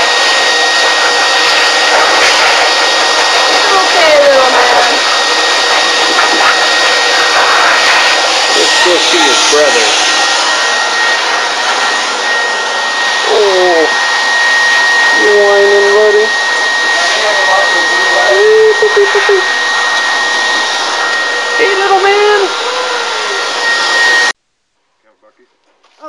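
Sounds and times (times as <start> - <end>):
vacuum cleaner motor running: 0.0 - 24.4
wavering voice sounds: 13.2 - 14.0.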